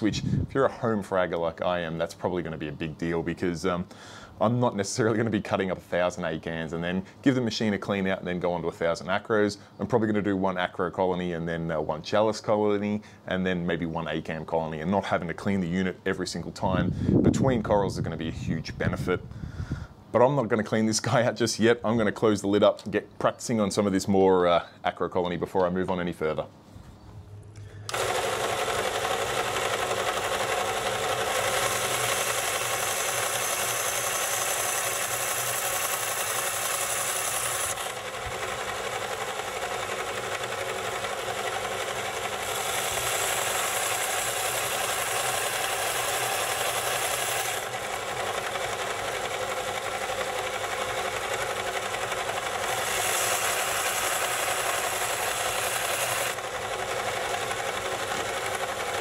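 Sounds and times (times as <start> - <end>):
band saw motor hum: 27.3 - 59.0
saw blade grinding coral: 27.9 - 59.0.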